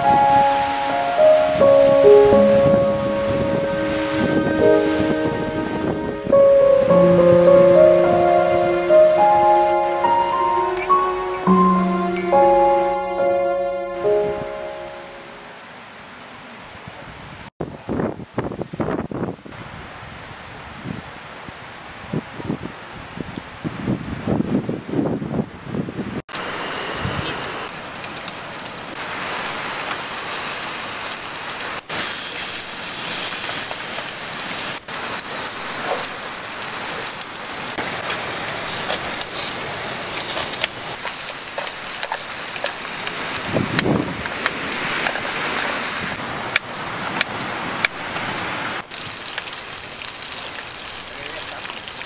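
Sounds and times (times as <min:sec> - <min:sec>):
light rain on a tent: 0:27.6 - 0:52.0
pork sizzling in a pan: 0:27.7 - 0:46.0, 0:48.9 - 0:52.0.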